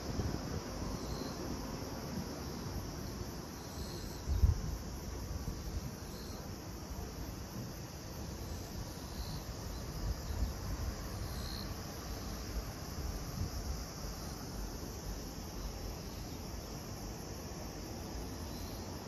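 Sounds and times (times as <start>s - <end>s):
insects chirring: 0.0s - 19.0s
wind on microphone: 4.2s - 5.9s.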